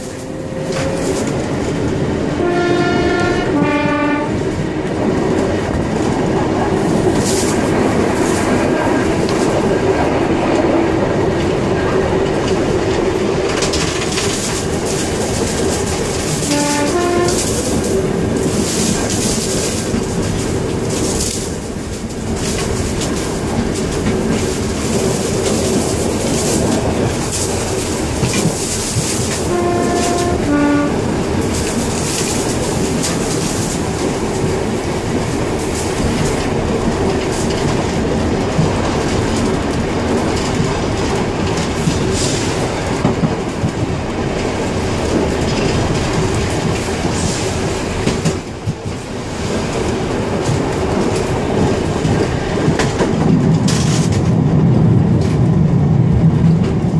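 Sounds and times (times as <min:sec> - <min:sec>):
rail joints clicking: 0:00.0 - 0:56.9
tram wheels rumbling on rails: 0:00.0 - 0:56.9
two-note horn: 0:02.4 - 0:04.3, 0:16.5 - 0:17.5, 0:29.5 - 0:31.0.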